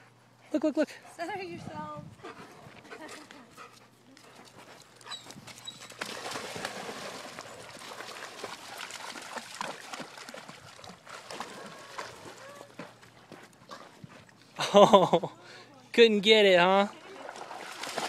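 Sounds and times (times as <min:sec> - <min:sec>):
dog splashing in water: 0:05.2 - 0:14.0, 0:17.1 - 0:18.0.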